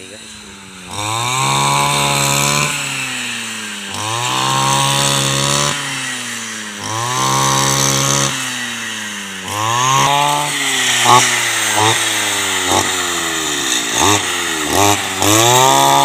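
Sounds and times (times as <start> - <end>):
brush cutter engine revving: 0.0 - 16.0.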